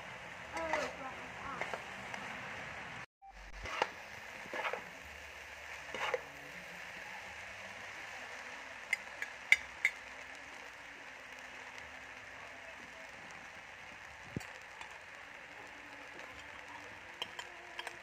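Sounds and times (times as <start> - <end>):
food sizzling in a wok: 0.0 - 18.0
utensils scraping a wok: 0.6 - 1.9, 3.6 - 4.9, 5.8 - 6.3, 16.2 - 18.0
metal clicks on a pan: 8.9 - 10.0, 17.2 - 18.0.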